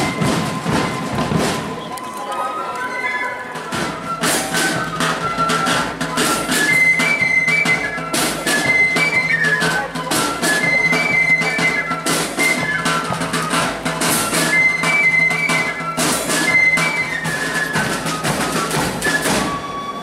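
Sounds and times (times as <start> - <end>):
side drums beating: 0.0 - 2.0, 3.4 - 20.0
flutes playing a march melody: 0.0 - 20.0.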